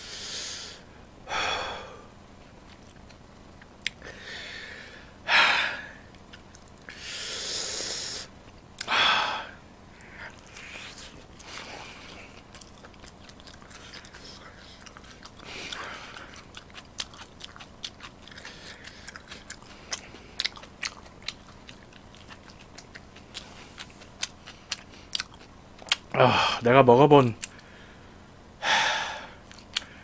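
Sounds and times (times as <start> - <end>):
man's hissing breaths: 0.0 - 2.1, 4.0 - 6.1, 6.9 - 8.3, 27.6 - 30.0.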